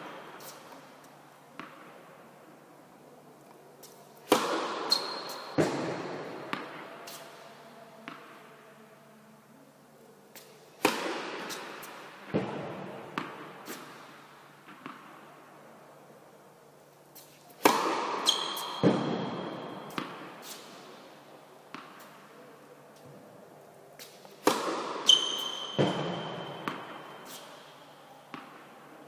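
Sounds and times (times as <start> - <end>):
racket striking tennis ball: 3.8 - 7.4, 10.4 - 15.1, 17.2 - 20.9, 24.0 - 28.6.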